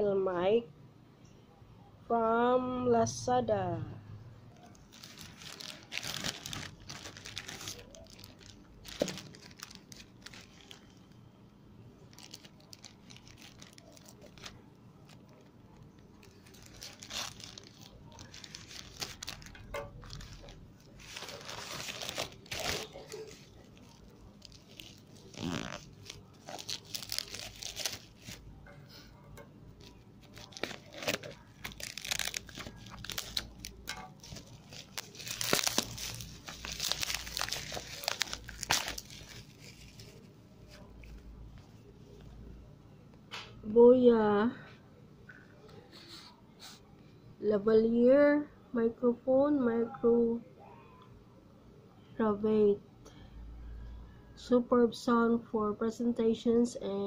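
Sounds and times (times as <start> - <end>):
plastic bag crinkling and tearing: 4.6 - 11.2, 12.0 - 28.5, 29.8 - 41.2.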